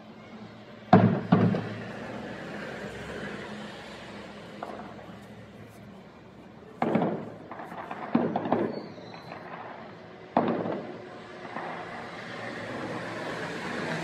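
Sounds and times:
firework booms: 0.9 - 1.8, 6.8 - 12.2
firework crackling: 1.0 - 2.4, 6.8 - 14.0.

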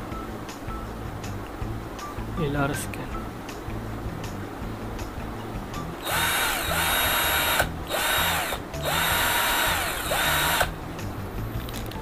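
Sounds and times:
cordless drill motor whine: 6.0 - 10.7.

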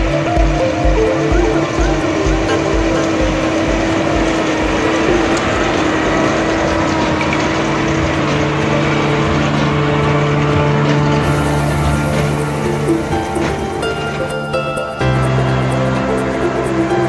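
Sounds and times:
tractor and baler running: 0.1 - 17.0.

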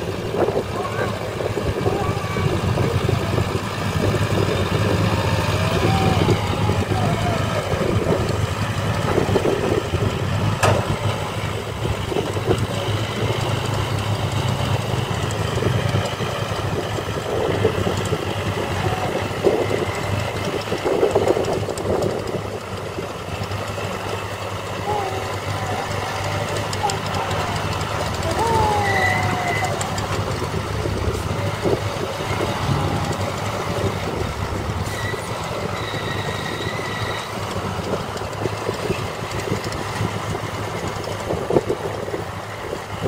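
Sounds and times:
diesel engines rumbling: 0.0 - 43.0
sharp metal clank: 10.6 - 11.1.

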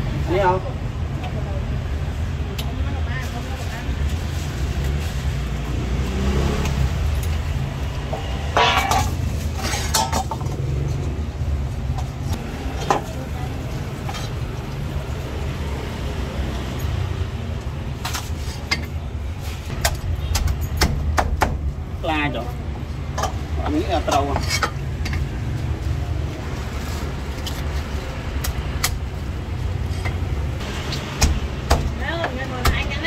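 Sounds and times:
street traffic rumble: 0.0 - 33.0
knocks and clinks: 8.2 - 10.6.

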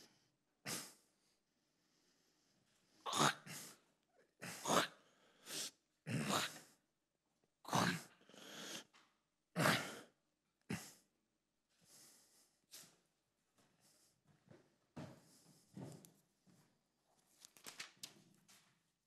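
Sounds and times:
person gasping and huffing: 3.0 - 6.8, 9.6 - 11.1.

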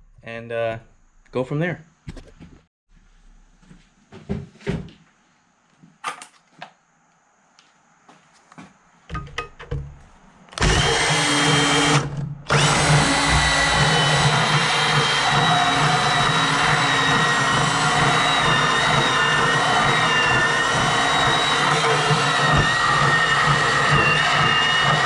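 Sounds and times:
band saw cutting metal: 10.6 - 25.0.

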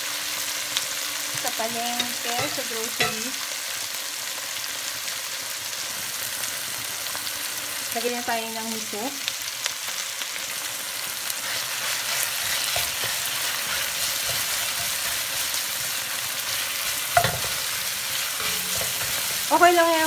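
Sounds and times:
paste sizzling in hot oil: 0.0 - 20.0
wooden spatula scraping pot: 11.4 - 19.5.

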